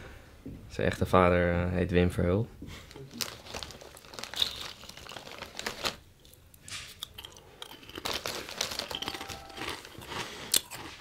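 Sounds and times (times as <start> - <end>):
plastic crisp bag crinkling: 2.8 - 11.0.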